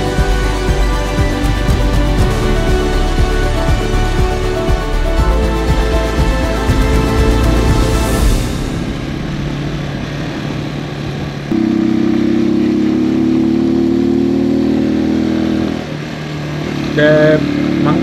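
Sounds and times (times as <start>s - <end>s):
motorcycle engine revving: 6.8s - 18.0s.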